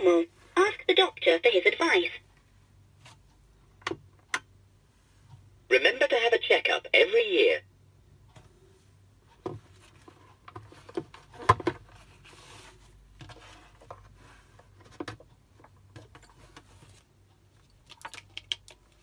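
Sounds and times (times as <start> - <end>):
faint steady hum: 0.0 - 19.0
plastic toy clicks and knocks: 17.9 - 18.9.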